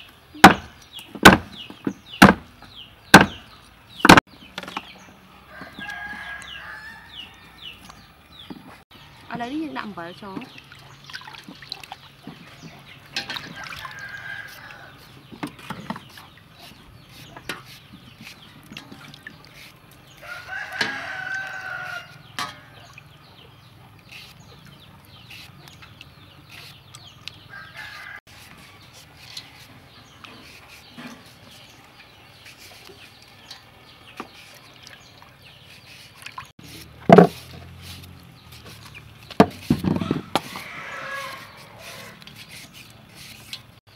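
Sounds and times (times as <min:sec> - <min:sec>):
rooster crowing: 0:05.5 - 0:07.6, 0:20.2 - 0:22.2, 0:27.5 - 0:28.3, 0:40.0 - 0:42.2
water drips and splashes: 0:09.6 - 0:27.6, 0:28.3 - 0:43.9.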